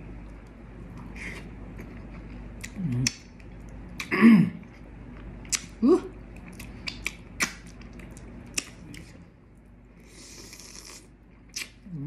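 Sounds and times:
wet lip smacks and mouth clicks: 6.4s - 9.0s.

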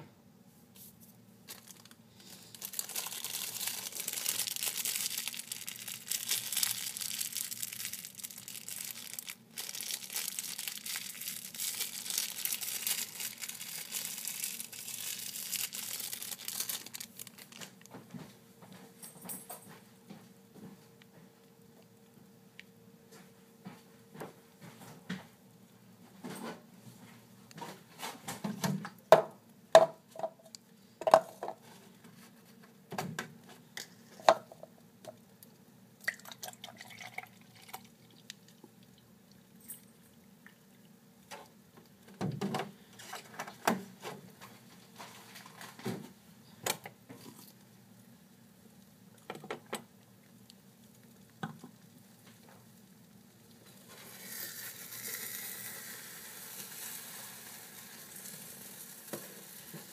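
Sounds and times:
faint steady hum: 0.0s - 59.9s
eggs sizzling in skillet: 1.7s - 17.5s, 49.8s - 59.9s.

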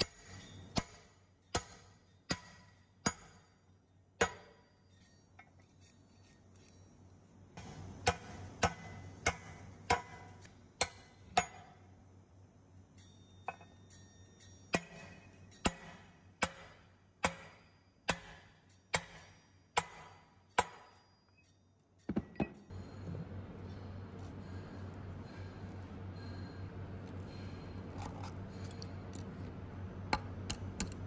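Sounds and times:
hammer striking metal: 7.6s - 11.8s, 13.0s - 21.1s.

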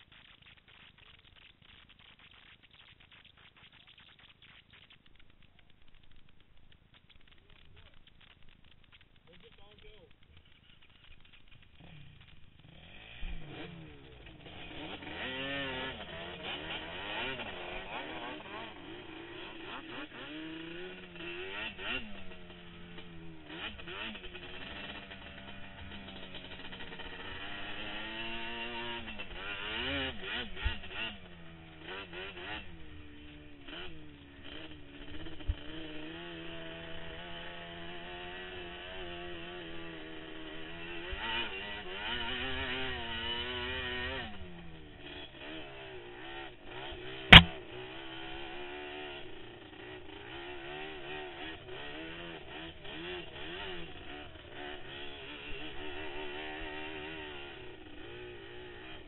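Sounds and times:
atv engine revving: 0.0s - 59.0s
sharp knock: 47.3s - 47.6s.

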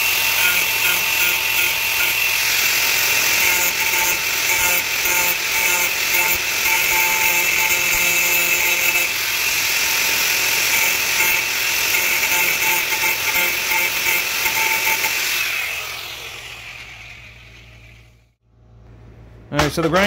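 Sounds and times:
grinding disc rasping on metal: 0.0s - 9.2s, 10.1s - 15.2s
angle grinder whine: 0.0s - 18.4s.

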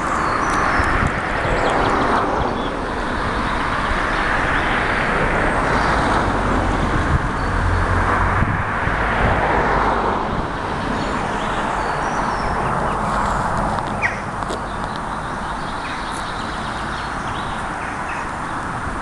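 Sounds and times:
vehicles passing: 0.0s - 19.0s
bird chirps: 10.9s - 18.4s.

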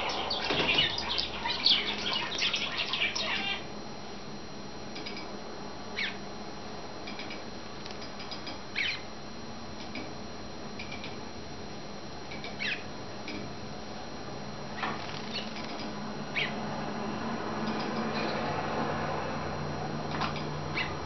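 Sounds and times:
finch falling calls: 0.0s - 3.6s.

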